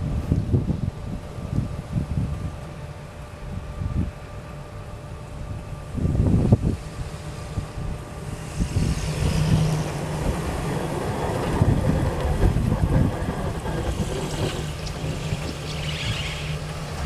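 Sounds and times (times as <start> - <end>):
wind rumble on microphone: 0.0 - 17.0
pickup truck on rails passing: 6.8 - 17.0.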